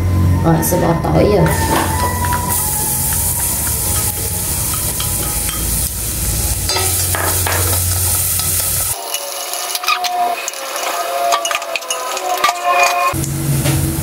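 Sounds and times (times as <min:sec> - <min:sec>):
garlic sizzling in hot oil: 0:01.6 - 0:13.3
spatula scraping pot: 0:06.7 - 0:13.2.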